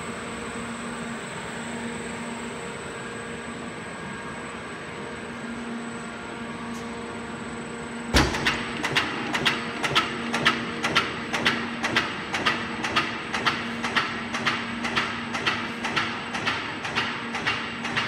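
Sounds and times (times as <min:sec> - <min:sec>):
machine humming with steady tones: 0:00.0 - 0:18.0
loud machine clank: 0:08.1 - 0:18.0
sharp regular machine knocks: 0:08.2 - 0:18.0.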